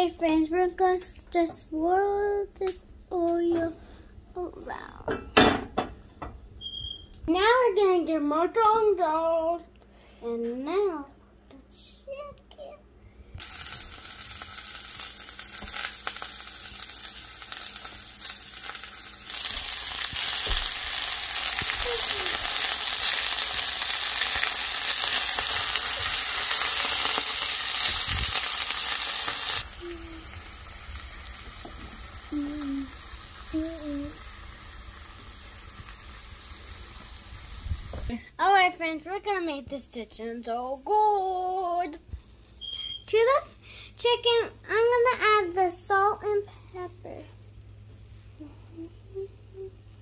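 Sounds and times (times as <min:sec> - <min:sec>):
chicken sizzling in oil: 0:13.4 - 0:38.1.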